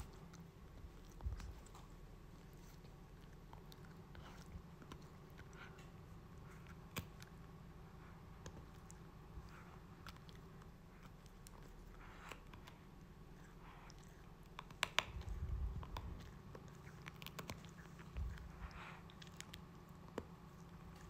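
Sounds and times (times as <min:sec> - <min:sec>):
animal teeth clicking and crunching: 0:13.8 - 0:21.0.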